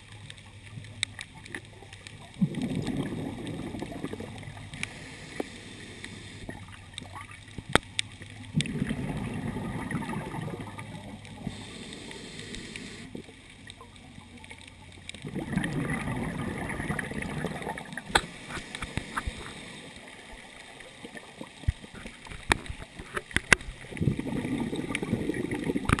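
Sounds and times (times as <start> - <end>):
underwater exhaled breath bubbling: 2.2 - 7.3, 8.5 - 13.4, 15.2 - 22.1, 23.7 - 26.0.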